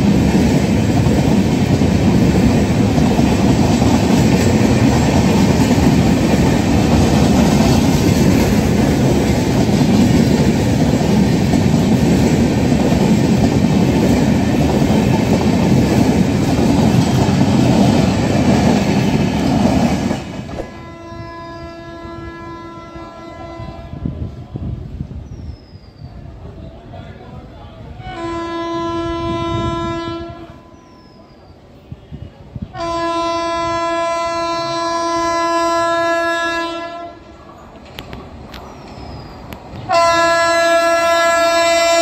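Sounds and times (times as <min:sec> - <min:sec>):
train wheels rumbling on rail: 0:00.0 - 0:42.0
train horn long note: 0:20.6 - 0:24.2, 0:28.0 - 0:30.9, 0:32.7 - 0:37.2, 0:39.9 - 0:42.0.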